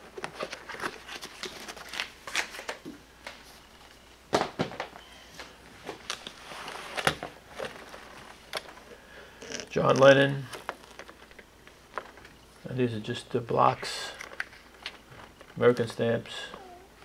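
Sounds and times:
pages rustling and sliding: 5.8s - 8.5s.

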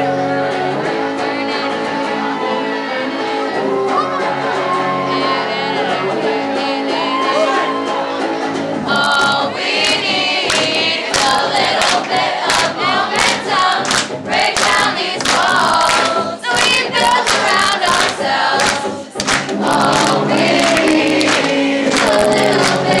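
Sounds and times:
electric guitar: 0.0s - 10.8s, 18.6s - 23.0s
voices singing: 0.0s - 23.0s
steady beat: 9.0s - 23.0s.

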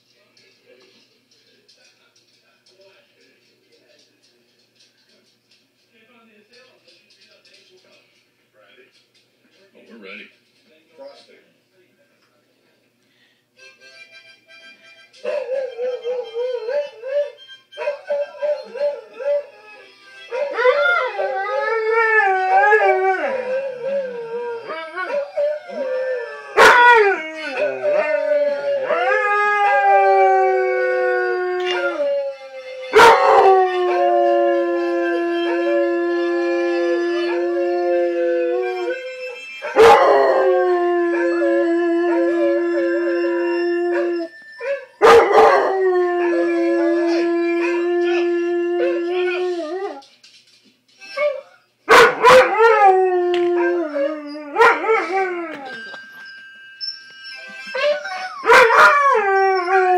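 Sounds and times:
dog howling: 15.3s - 50.0s, 51.2s - 56.0s, 57.8s - 59.9s.

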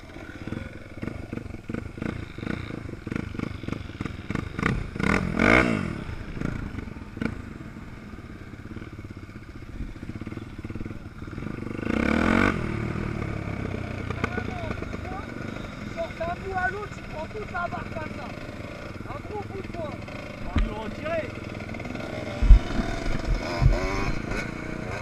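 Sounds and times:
off-road motorcycle engine: 0.0s - 25.0s.

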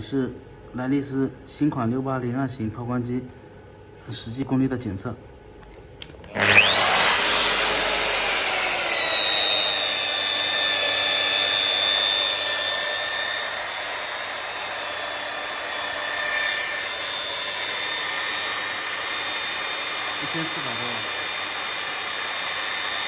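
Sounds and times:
car polisher motor whine: 6.2s - 23.0s.

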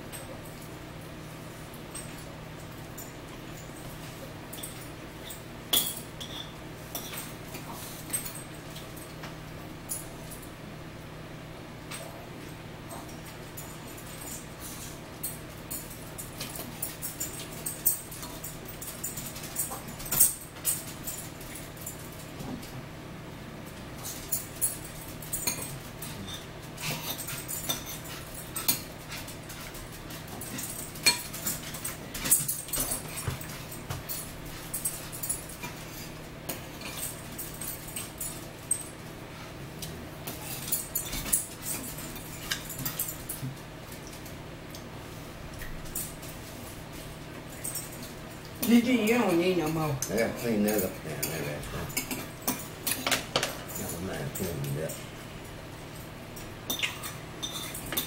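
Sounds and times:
steady low hum: 0.0s - 58.0s
cutlery clinking against dishes: 4.5s - 9.2s, 24.0s - 38.9s, 39.8s - 44.8s, 49.6s - 55.1s, 56.4s - 58.0s
clicks and clinks from eating: 12.9s - 22.7s, 56.0s - 58.0s.

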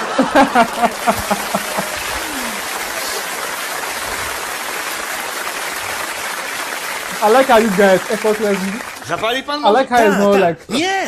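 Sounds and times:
man laughing: 0.0s - 2.7s
audience applause and laughter: 0.0s - 9.3s.

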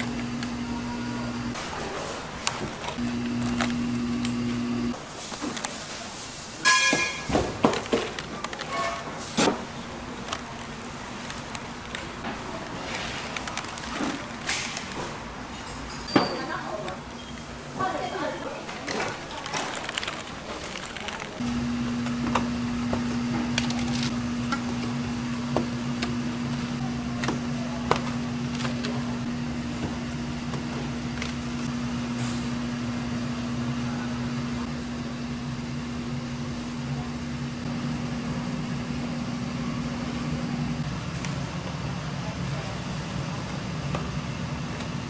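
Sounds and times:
machine hum: 0.0s - 1.6s, 2.4s - 5.0s, 19.8s - 45.0s.

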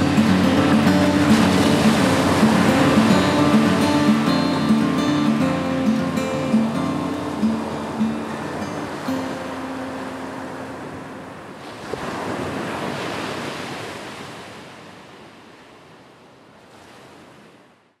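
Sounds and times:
guitar note ringing: 0.0s - 11.3s
waves washing onto beach: 0.0s - 18.0s.

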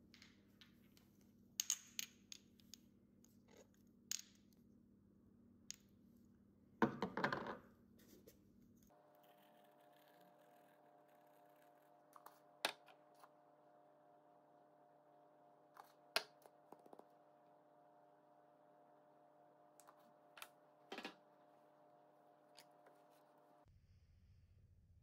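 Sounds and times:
faint hum: 7.8s - 25.0s.

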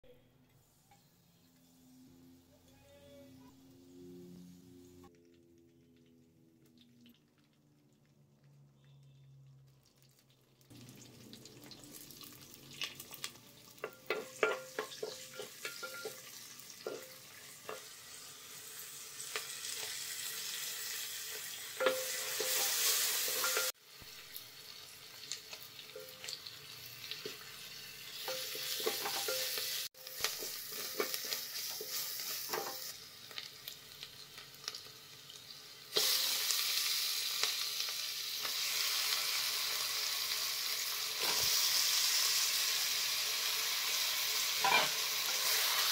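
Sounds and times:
hot oil sizzling in a pot: 9.8s - 45.9s.

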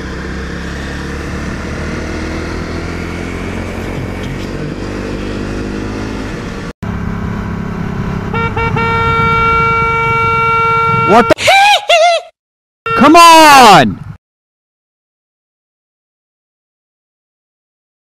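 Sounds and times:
three-wheeler motorcycle running: 0.0s - 11.2s.

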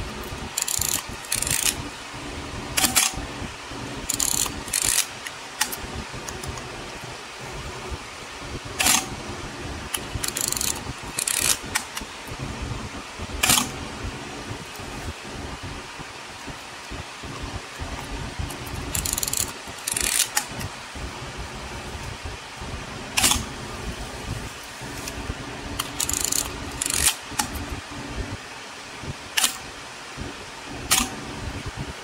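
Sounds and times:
film advance lever ratcheting: 0.6s - 1.8s, 2.8s - 3.2s, 4.1s - 6.6s, 8.8s - 9.1s, 9.9s - 12.0s, 13.4s - 13.8s, 18.5s - 20.7s, 23.2s - 23.5s, 25.8s - 27.6s
camera shutter and mirror clack: 2.8s - 3.2s, 8.8s - 9.2s, 13.4s - 13.8s, 23.2s - 23.5s, 30.9s - 31.2s.

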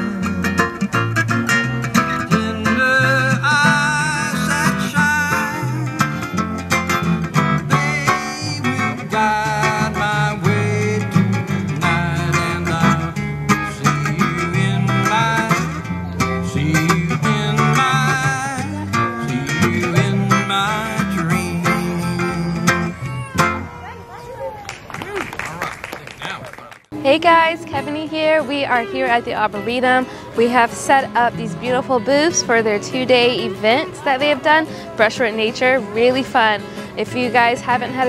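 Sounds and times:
bass notes: 0.0s - 23.9s
picked acoustic guitar: 0.0s - 24.4s, 26.9s - 38.0s.

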